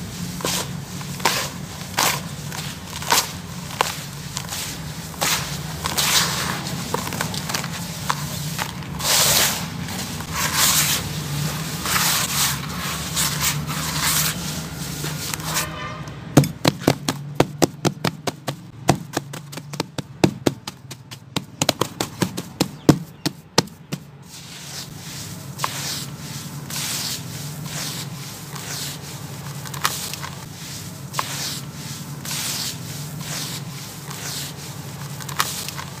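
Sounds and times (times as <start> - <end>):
gritty sand rubbing swishes: 0.0 - 15.8, 23.9 - 36.0.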